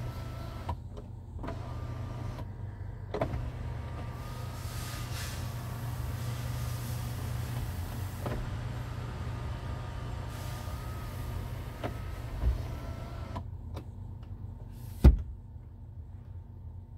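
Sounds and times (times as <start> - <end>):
sunroof motor whining: 0.0 - 0.8, 1.4 - 2.5, 3.2 - 13.4.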